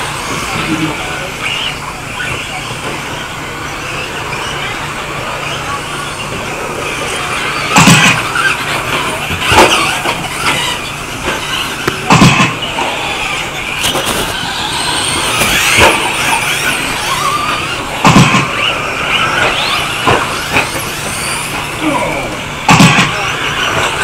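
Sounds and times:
faint gliding whines: 0.0s - 24.0s
rc trucks running: 0.0s - 24.0s
sharp knocks: 7.8s - 8.2s, 11.2s - 12.7s, 18.0s - 18.7s, 22.7s - 23.2s.

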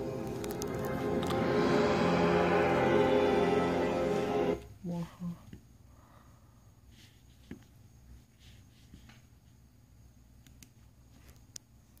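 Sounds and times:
low hum: 0.0s - 4.8s.

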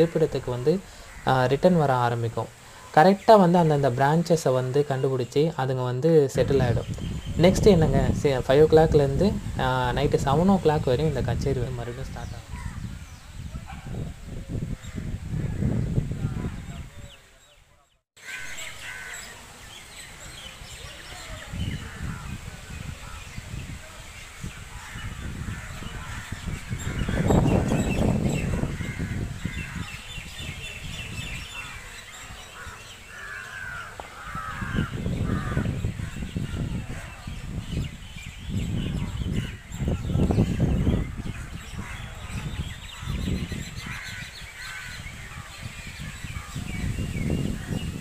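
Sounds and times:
small birds chirping: 0.0s - 48.0s
crows cawing: 0.8s - 1.5s, 18.2s - 19.4s, 24.7s - 27.5s, 28.6s - 30.0s, 31.5s - 37.2s, 43.0s - 46.6s
wind rumble on microphone: 6.4s - 17.4s, 20.1s - 48.0s.

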